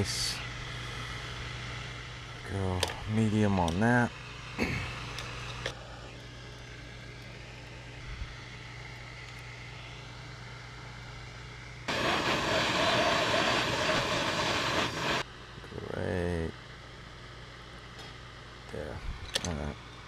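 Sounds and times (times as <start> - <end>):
gas torch low hum: 0.0 - 15.3
gas torch flame rushing: 11.9 - 15.2.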